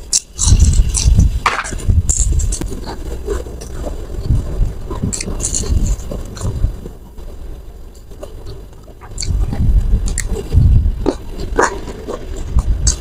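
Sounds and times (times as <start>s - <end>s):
person chewing food: 0.0s - 1.4s, 2.0s - 7.3s, 7.9s - 13.0s
sharp clicks and crunches: 0.0s - 13.0s.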